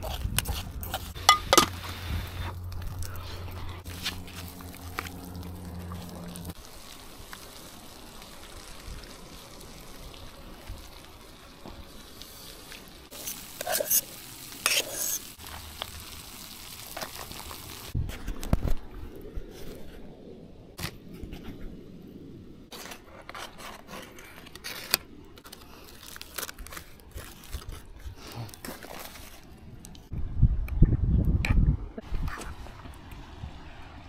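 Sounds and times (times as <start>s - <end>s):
aluminium foil crinkling: 0.0s - 18.0s, 22.7s - 30.0s
utensil scraping metal pot: 13.1s - 15.4s.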